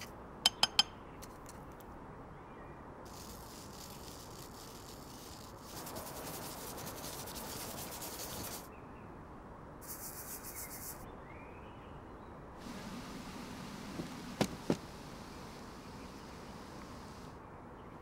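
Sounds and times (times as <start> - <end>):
brush scrubbing wire mesh: 3.2 - 8.7.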